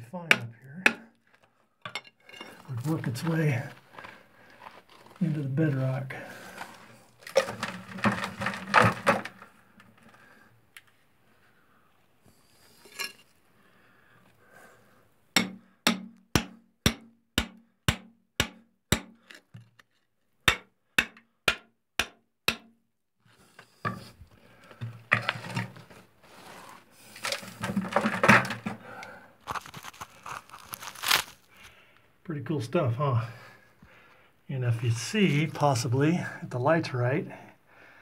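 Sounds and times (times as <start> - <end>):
hammer striking steel chisel: 0.3 - 1.1, 15.4 - 19.4, 20.5 - 22.8
rock scraping and crumbling: 2.2 - 10.3, 24.0 - 31.6.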